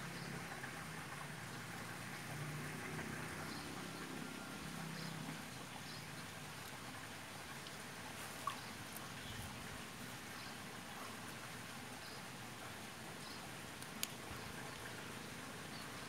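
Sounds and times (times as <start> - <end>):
faint steady hiss: 0.0 - 16.0
faint high ticks: 13.2 - 14.9.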